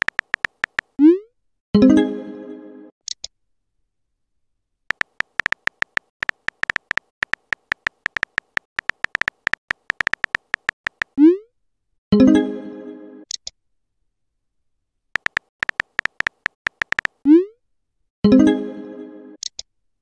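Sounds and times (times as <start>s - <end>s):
phone keyboard tapping: 0.0s - 1.0s, 4.9s - 11.2s, 15.2s - 17.2s.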